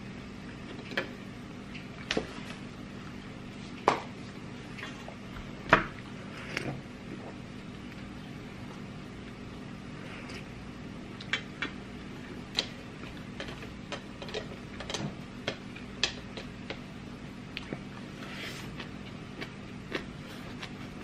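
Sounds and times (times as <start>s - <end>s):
faint low hum: 0.0s - 21.0s
mouth chewing food: 17.5s - 21.0s.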